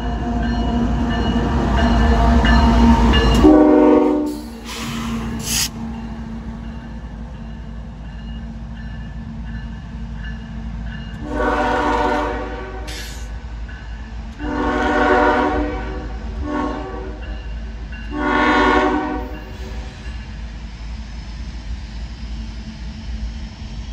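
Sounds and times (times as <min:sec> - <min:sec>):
locomotive horn: 0:03.3 - 0:04.6, 0:11.2 - 0:13.2, 0:14.4 - 0:17.4, 0:18.1 - 0:19.4.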